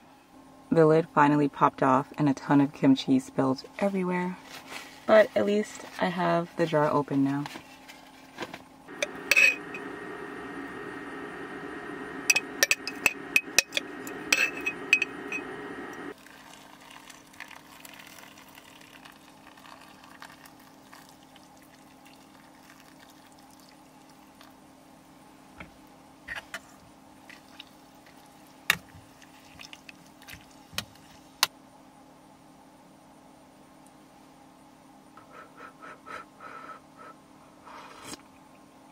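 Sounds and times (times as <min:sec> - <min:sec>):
steady low hum: 0:07.5 - 0:38.9
water pouring into pot: 0:16.1 - 0:24.4.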